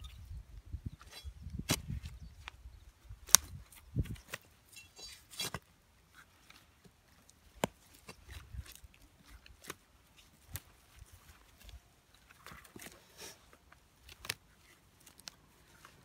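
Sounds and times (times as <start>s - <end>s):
scraping of earth: 3.3s - 16.0s.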